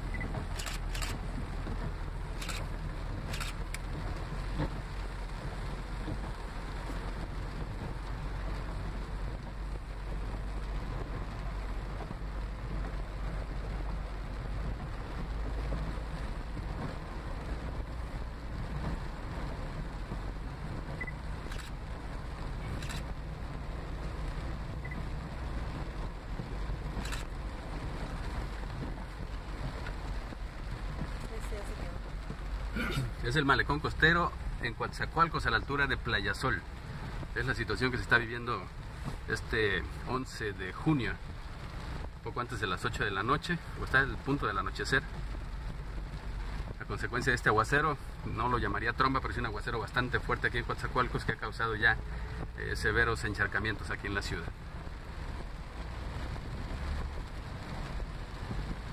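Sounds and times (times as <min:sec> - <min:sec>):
heavy rain pouring: 0:00.0 - 0:58.9
vehicle rumbling on flooded streets: 0:00.0 - 0:58.9.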